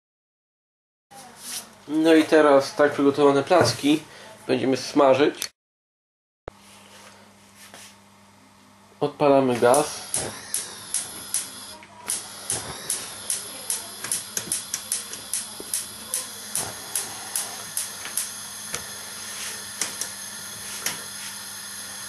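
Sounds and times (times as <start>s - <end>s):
gas hissing: 9.5s - 22.0s
spark igniter clicking: 9.7s - 19.0s, 19.7s - 21.1s.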